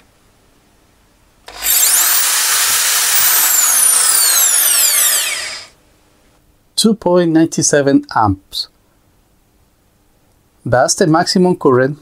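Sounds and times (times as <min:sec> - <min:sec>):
electric drill whining: 0:01.5 - 0:05.8.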